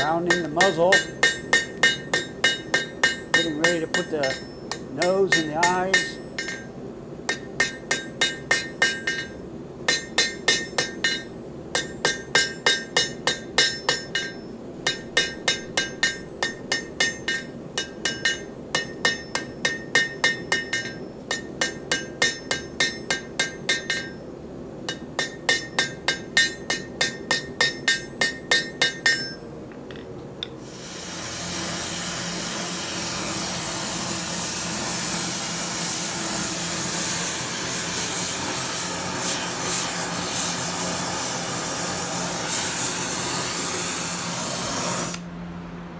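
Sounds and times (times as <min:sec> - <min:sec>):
hammer striking metal on anvil: 0:00.0 - 0:06.7, 0:07.3 - 0:24.2, 0:24.9 - 0:30.6
gas torch flame hissing: 0:30.6 - 0:45.3.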